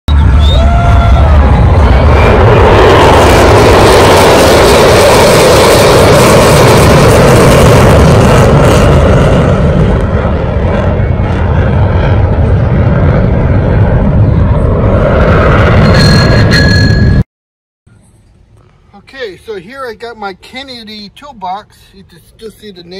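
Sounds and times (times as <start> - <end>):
jet aircraft flying past: 0.1 - 17.2.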